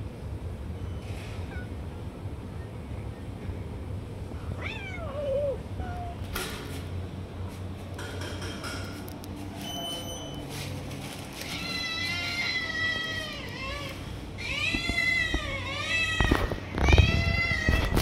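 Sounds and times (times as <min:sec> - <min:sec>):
cat meowing: 0:04.6 - 0:06.2, 0:11.4 - 0:18.0.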